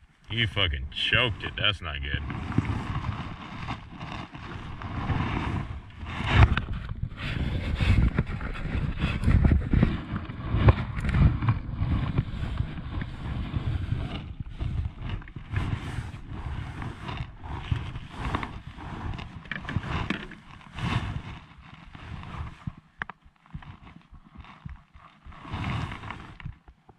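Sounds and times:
wind buffeting microphone: 0.0 - 21.3
jacket sleeve rubbing on microphone: 0.3 - 26.7.

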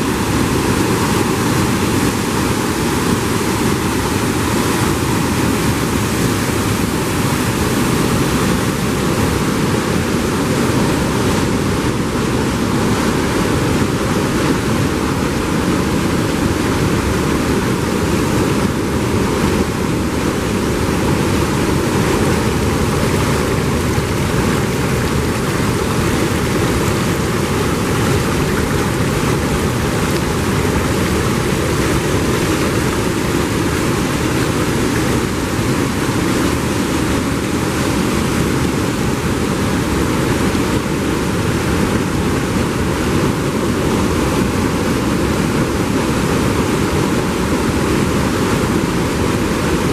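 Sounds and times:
waterfall rushing over rocks: 0.0 - 49.9.

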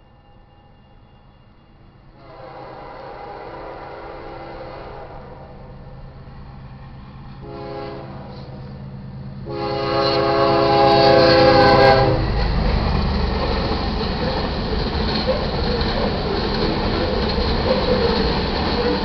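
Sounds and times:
train rumbling: 0.0 - 19.0
locomotive horn blasts: 2.2 - 5.5, 7.4 - 8.6, 9.4 - 12.3
wheels clattering on rail: 9.5 - 19.0.

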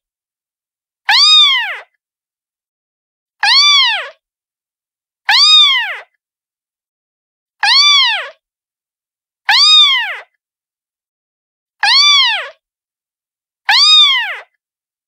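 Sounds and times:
cat meowing: 1.1 - 1.9, 3.4 - 4.2, 5.3 - 6.1, 7.6 - 8.4, 9.5 - 10.3, 11.8 - 12.6, 13.7 - 14.5.

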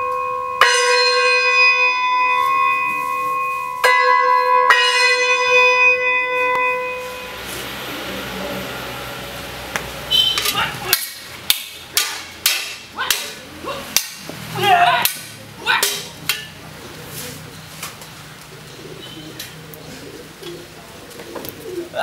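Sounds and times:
sharp smacks of strikes: 10.9 - 14.4
fighters shouting: 13.0 - 16.1.

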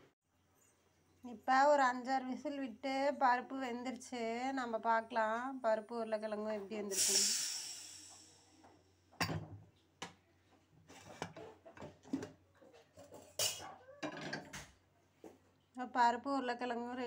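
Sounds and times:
pressure cooker steam hissing: 6.9 - 8.5.

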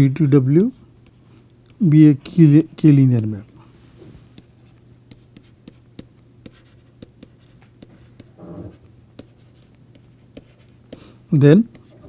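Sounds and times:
faint steady hum: 0.0 - 12.0
stylus tapping on pen tablet: 4.3 - 12.0.

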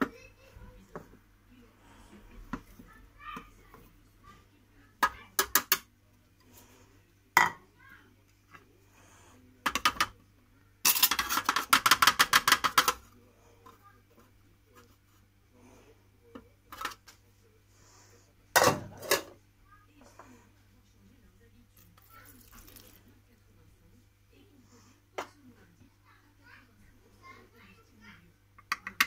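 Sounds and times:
ceramic knocking on steel bowl: 7.4 - 7.6.

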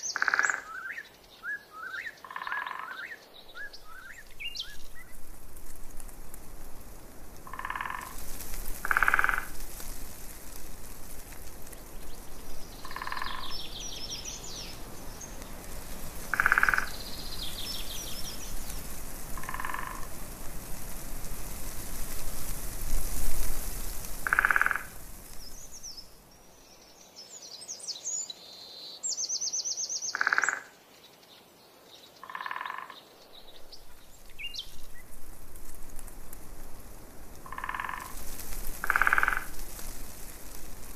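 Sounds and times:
frogs croaking: 0.0 - 1.1, 1.8 - 4.7, 7.4 - 9.7, 12.7 - 15.1, 16.2 - 20.2, 24.1 - 25.1, 30.0 - 30.8, 32.2 - 33.3, 37.4 - 39.8
steady hiss: 3.2 - 30.2, 33.0 - 40.9
birds trilling: 12.5 - 15.4.

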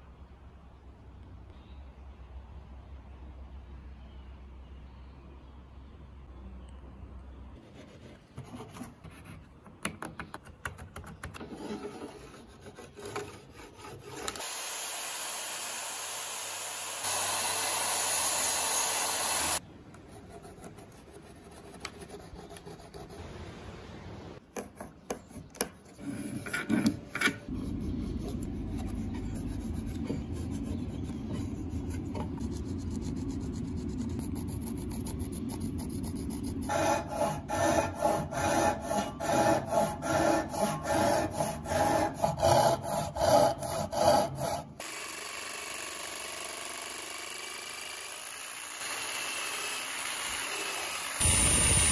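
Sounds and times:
wood rubbed and scraped: 11.4 - 14.4, 25.2 - 44.8
steady noise: 51.2 - 51.9.

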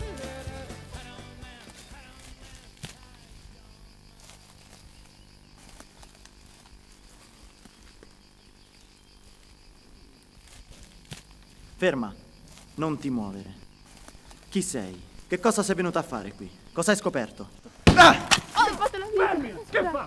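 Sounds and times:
music track: 0.0 - 2.5
insects chirring: 0.0 - 20.0.

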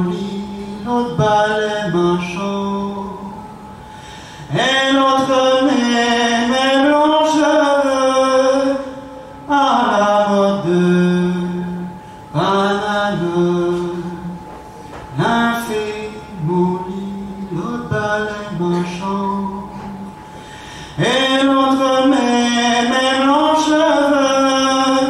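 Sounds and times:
man singing unaccompanied: 0.0 - 3.6, 4.5 - 14.4, 15.1 - 20.1, 20.9 - 25.0.

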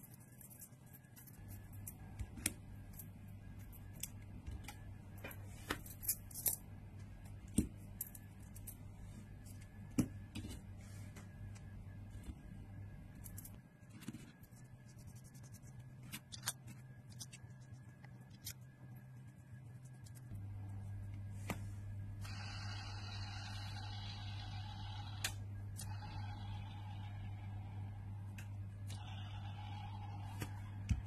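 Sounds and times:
small metal parts clicking: 5.9 - 6.6.

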